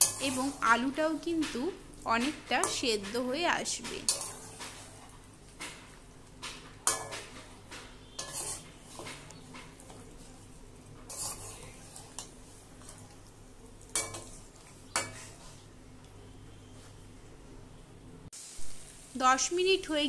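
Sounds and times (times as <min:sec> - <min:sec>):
metal spatula scraping a pan: 0:00.0 - 0:00.9, 0:02.6 - 0:05.9, 0:06.8 - 0:13.2, 0:13.8 - 0:15.7.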